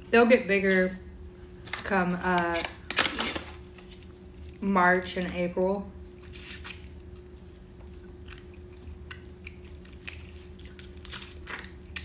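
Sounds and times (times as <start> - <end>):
faint steady hum: 0.0 - 12.0
person chewing and sucking: 6.1 - 12.0.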